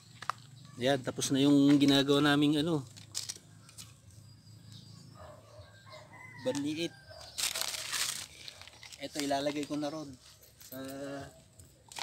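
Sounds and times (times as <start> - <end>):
rural ambience: 0.0 - 12.0
distant rooster crowing: 5.2 - 7.4
handling rustle: 7.2 - 12.0.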